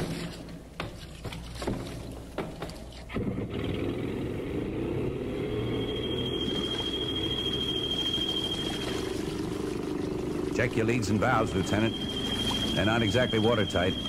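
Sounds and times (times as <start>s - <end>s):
boat motor rumble: 0.0s - 14.0s
thin high whine: 5.2s - 14.0s.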